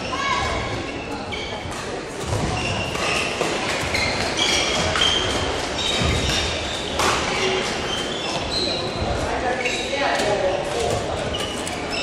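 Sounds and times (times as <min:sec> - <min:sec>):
shoes squeaking on court floor: 0:00.0 - 0:12.0
rackets striking shuttlecocks: 0:01.6 - 0:08.4.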